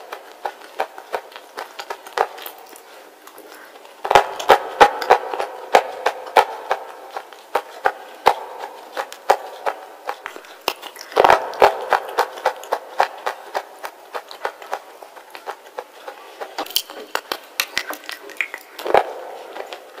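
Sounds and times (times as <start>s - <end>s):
crunching bites: 8.4s - 14.7s.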